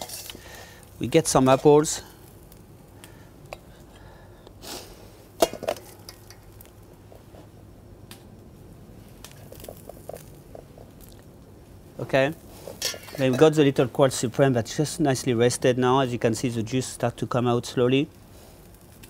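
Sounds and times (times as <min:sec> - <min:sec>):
utensil clinking on metal and plate: 0:12.8 - 0:13.6.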